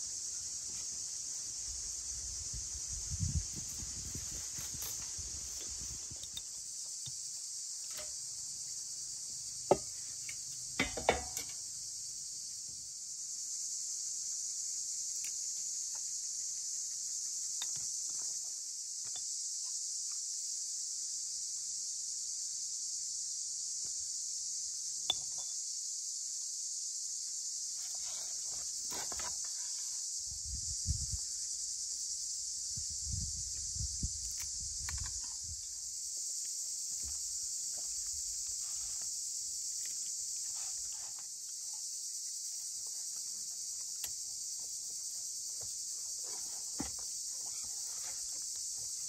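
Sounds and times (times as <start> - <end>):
high-pitched insect chorus: 0.0 - 49.0.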